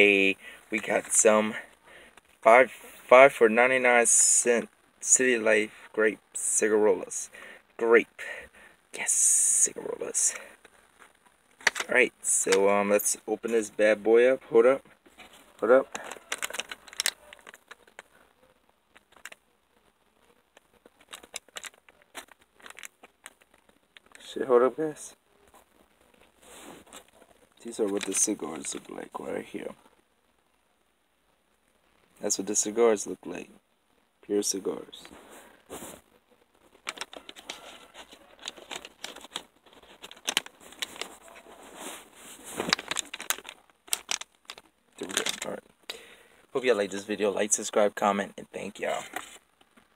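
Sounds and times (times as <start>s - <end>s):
packet crackling and rustling: 10.4s - 12.7s, 15.0s - 24.4s, 25.4s - 29.6s, 35.0s - 46.1s.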